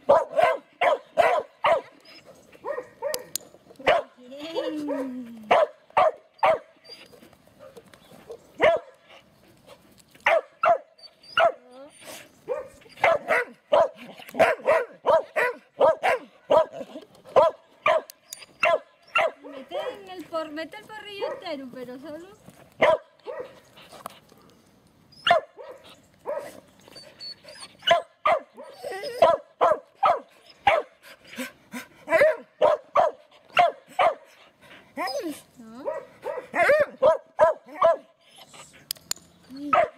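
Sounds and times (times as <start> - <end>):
dog barking: 0.1 - 1.9, 2.6 - 4.2, 4.9 - 6.7, 7.6 - 9.0, 10.2 - 11.6, 12.5 - 20.0, 21.2 - 21.5, 22.8 - 23.6, 25.3 - 26.6, 27.8 - 31.0, 32.1 - 34.3, 35.8 - 38.2.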